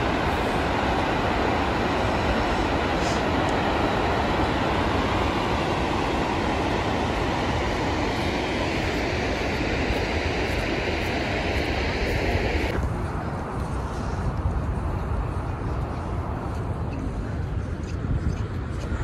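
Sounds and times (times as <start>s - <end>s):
vehicle road noise: 0.0s - 14.1s.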